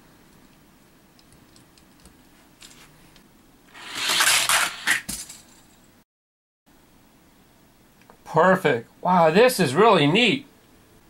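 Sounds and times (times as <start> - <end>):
toy truck rattling down plastic track: 3.8 - 5.4.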